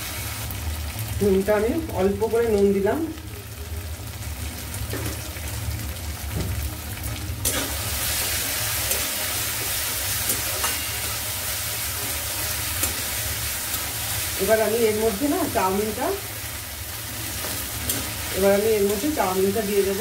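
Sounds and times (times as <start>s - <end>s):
vegetables sizzling in a wok: 0.0s - 20.0s
metal spatula scraping a pan: 7.4s - 14.0s.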